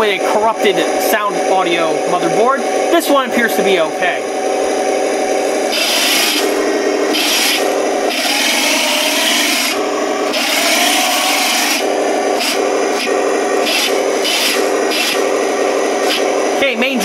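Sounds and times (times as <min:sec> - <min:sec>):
recorded engine sound from speaker: 0:00.0 - 0:17.0
toy tank gears and tracks whirring: 0:05.7 - 0:17.0.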